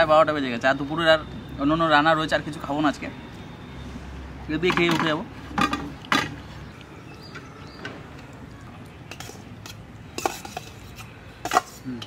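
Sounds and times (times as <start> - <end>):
steel bowl and plate clinking: 9.1 - 12.0.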